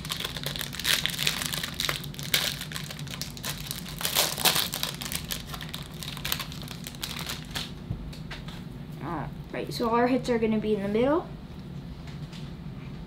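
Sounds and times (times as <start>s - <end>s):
card pack wrappers crinkling: 0.0s - 7.8s.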